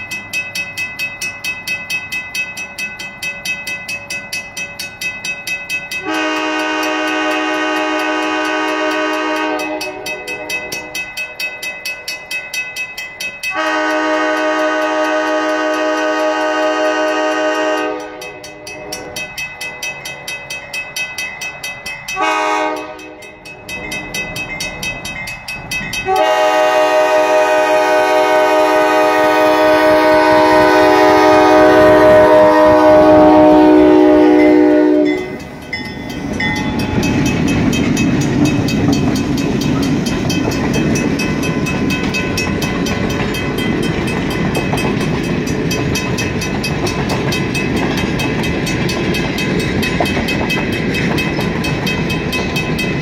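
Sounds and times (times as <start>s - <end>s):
rhythmic ringing: 0.0s - 14.1s, 17.9s - 26.6s, 30.5s - 53.0s
locomotive air horn blasts: 6.0s - 10.5s, 13.5s - 19.0s, 22.2s - 23.3s, 26.1s - 35.4s.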